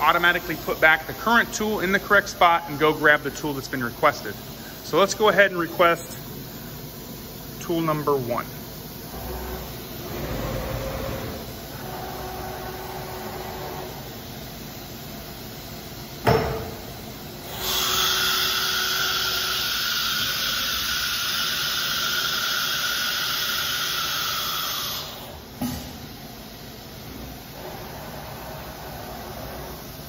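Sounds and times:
compressed air hiss: 0.1 - 8.9, 17.6 - 26.6
machine clunk: 16.2 - 16.8.

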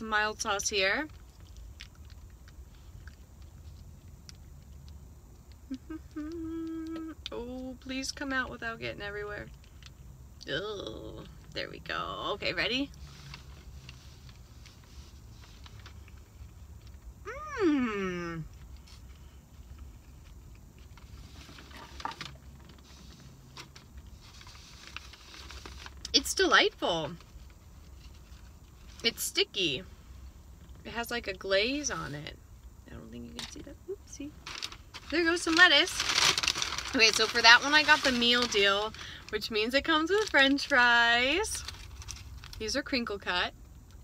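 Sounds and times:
faint low hum: 0.0 - 44.0
low steady rumble: 0.0 - 44.0
person chewing crispy food: 1.1 - 7.0
plastic packet being torn open: 34.4 - 39.1
small clicks and crackles: 34.4 - 42.6.

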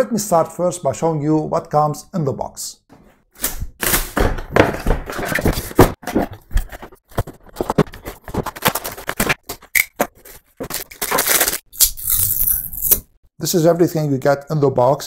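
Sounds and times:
cardboard and plastic crinkling: 5.1 - 11.7.

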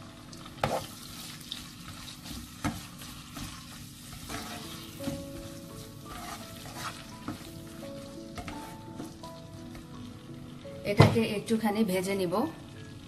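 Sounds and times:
prawns sizzling in hot oil: 0.0 - 13.0.

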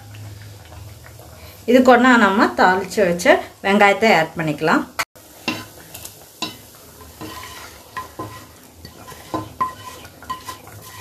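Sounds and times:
light sizzle: 0.0 - 11.0
spatula scraping and tapping pan: 5.4 - 11.0.

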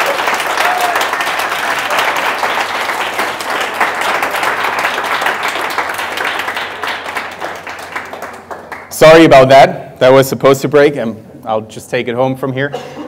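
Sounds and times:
audience applauding: 0.0 - 8.9.

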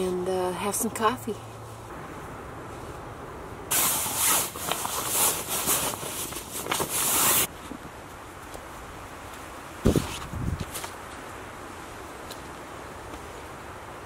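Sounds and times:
clothing and gear rustling: 3.7 - 7.8.

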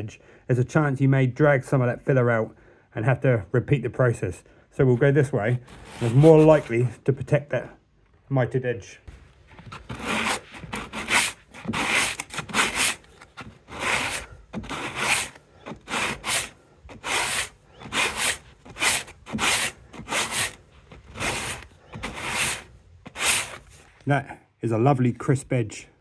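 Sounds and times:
sandpaper rasping on wood filler: 5.6 - 6.7, 9.7 - 23.8.

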